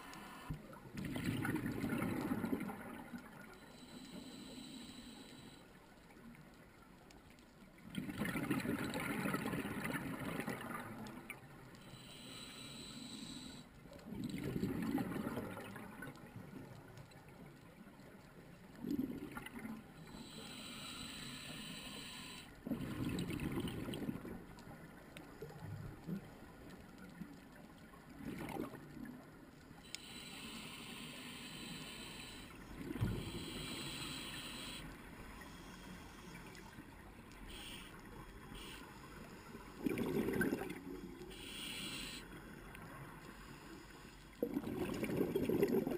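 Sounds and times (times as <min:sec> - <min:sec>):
exhaled bubbles gurgling underwater: 0:00.6 - 0:03.6, 0:07.8 - 0:11.6, 0:14.0 - 0:17.9, 0:18.7 - 0:21.8, 0:22.6 - 0:43.3, 0:44.3 - 0:45.9
regulator inhale hiss: 0:03.7 - 0:05.6, 0:11.8 - 0:13.7, 0:20.0 - 0:22.6, 0:29.8 - 0:39.8, 0:41.0 - 0:42.6, 0:43.2 - 0:44.4.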